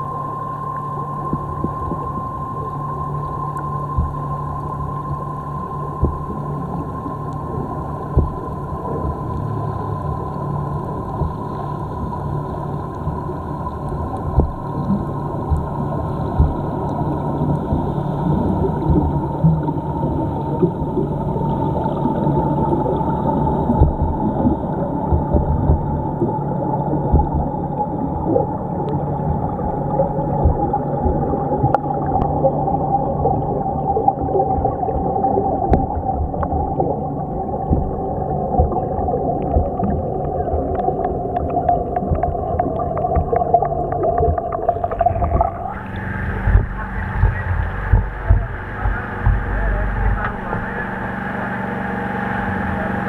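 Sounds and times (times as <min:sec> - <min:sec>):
muffled underwater rumble: 0:00.0 - 0:53.0
steady high whine: 0:00.0 - 0:53.0
small clicks and pops: 0:13.8 - 0:17.9, 0:39.4 - 0:50.6.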